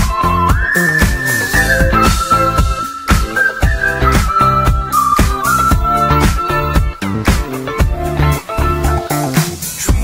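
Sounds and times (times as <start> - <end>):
steady music beat: 0.0 - 10.0
high thin lead melody: 0.8 - 7.2.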